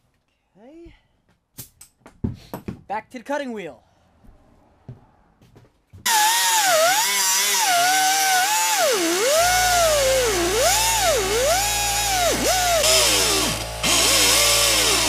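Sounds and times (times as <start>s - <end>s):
air cutoff wheel whining: 6.1s - 15.0s.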